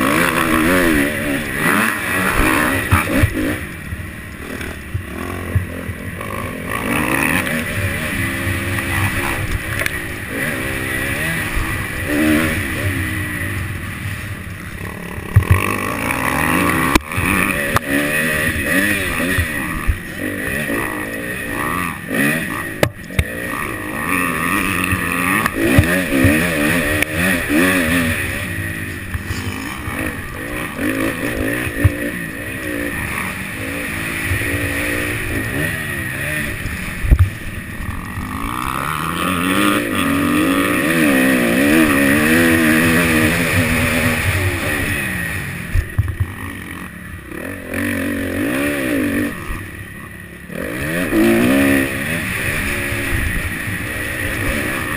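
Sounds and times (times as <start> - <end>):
dirt bike engine revving: 0.0 - 54.9
wind and dirt noise: 0.0 - 54.9.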